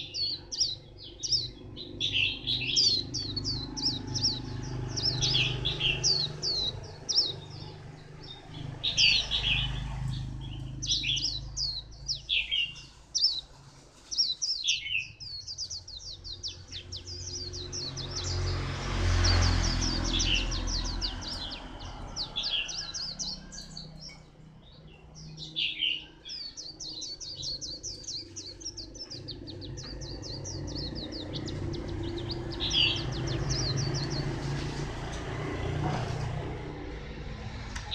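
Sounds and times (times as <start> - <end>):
bird twittering song: 0.0 - 36.9
low rumble: 26.7 - 37.9.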